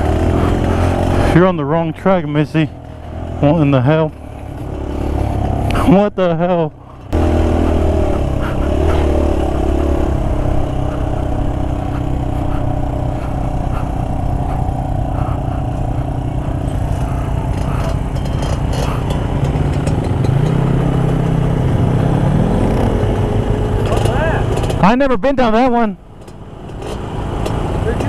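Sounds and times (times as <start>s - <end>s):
dirt bike engine running: 0.0s - 28.0s
engine note rising in pitch: 7.1s - 24.6s
bike clatter: 10.0s - 21.2s.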